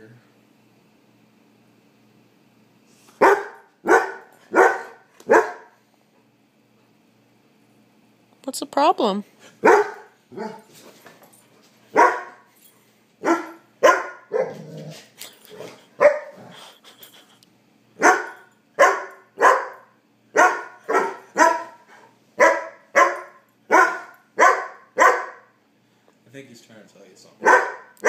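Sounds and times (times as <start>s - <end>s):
puppy barking: 3.2s - 5.8s, 9.6s - 10.7s, 11.9s - 12.5s, 13.2s - 14.7s, 16.0s - 16.4s, 18.0s - 25.6s, 27.4s - 28.0s.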